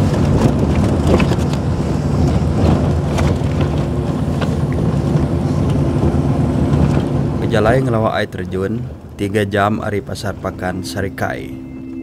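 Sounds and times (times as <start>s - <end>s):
vehicle engine and tyre rumble: 0.0s - 12.0s.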